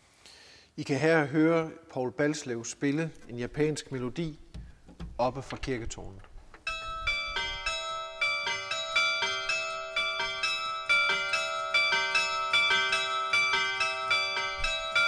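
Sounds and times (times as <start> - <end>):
carillon bells playing melody: 6.6 - 15.0.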